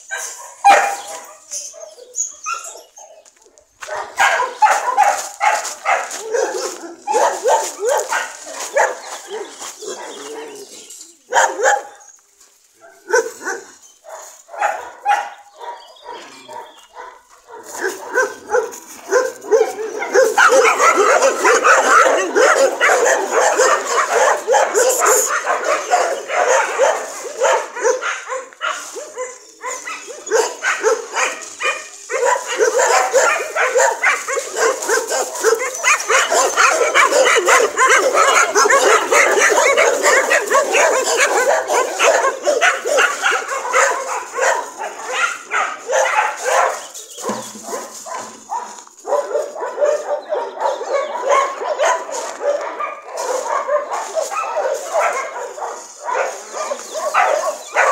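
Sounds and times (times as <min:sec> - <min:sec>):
dogs barking and yipping: 0:00.0 - 0:57.9.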